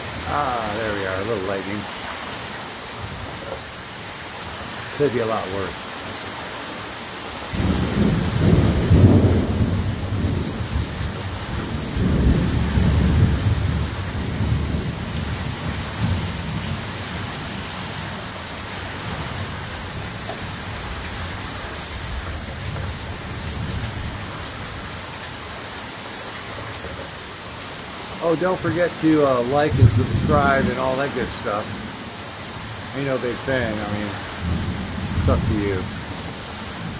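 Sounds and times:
heavy rain: 0.0 - 36.9
thunder rumbling: 7.5 - 18.2, 18.9 - 25.1, 28.4 - 32.0, 32.6 - 36.9.

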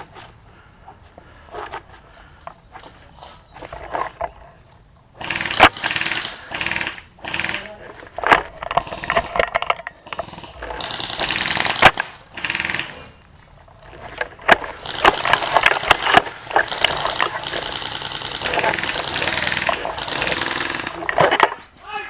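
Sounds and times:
airsoft guns firing bursts: 5.2 - 7.8, 10.3 - 13.0, 14.7 - 21.3.

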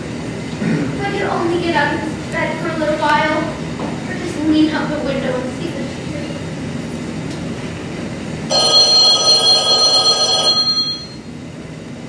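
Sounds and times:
telephone ringing: 8.5 - 11.3.

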